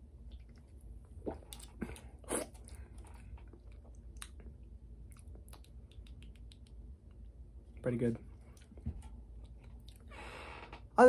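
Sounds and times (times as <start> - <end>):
person gulping a drink: 0.3 - 6.7.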